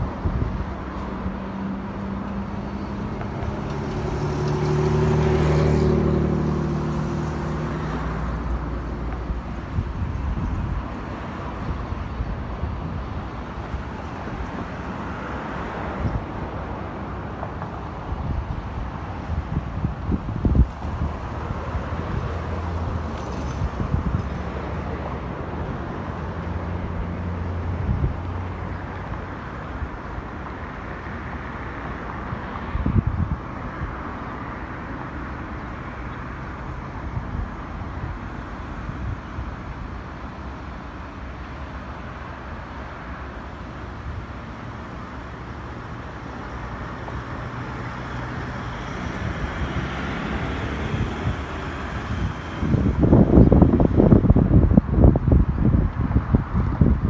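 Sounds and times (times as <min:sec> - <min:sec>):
wind buffeting microphone: 0:00.0 - 0:01.4, 0:03.0 - 0:30.7, 0:32.1 - 0:35.4, 0:47.0 - 0:57.0
low hum of traffic: 0:00.0 - 0:57.0.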